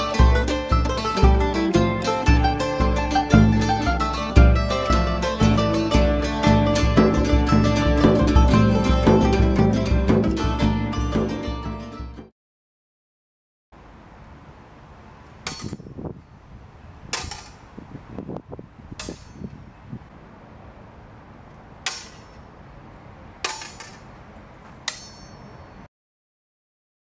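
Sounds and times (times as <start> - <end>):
swords clashing: 15.4 - 15.9, 17.1 - 17.6, 19.0 - 19.4, 21.8 - 22.5, 23.4 - 24.1, 24.8 - 25.5.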